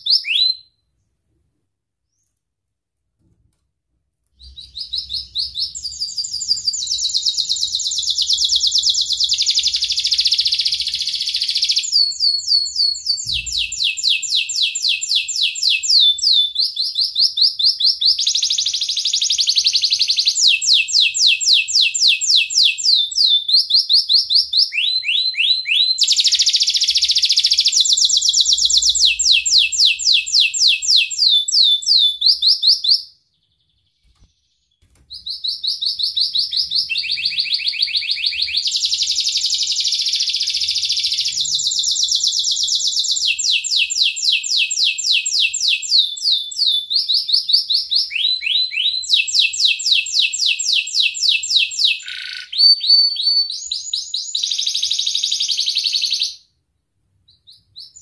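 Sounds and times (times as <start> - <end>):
canary singing trills: 4.4 - 56.4, 57.3 - 58.0.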